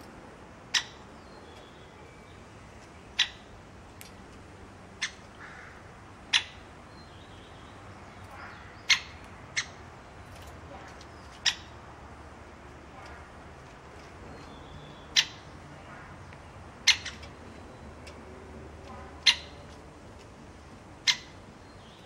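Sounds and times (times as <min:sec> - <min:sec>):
woodpecker kik calls: 0:00.7 - 0:01.9, 0:03.0 - 0:04.2, 0:05.0 - 0:12.2, 0:12.8 - 0:22.0.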